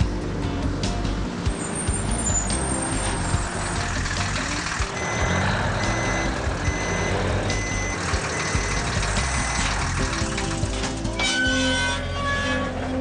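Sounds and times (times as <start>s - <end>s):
truck engine running: 0.0s - 11.2s
truck reversing alarm beeping: 1.6s - 10.3s.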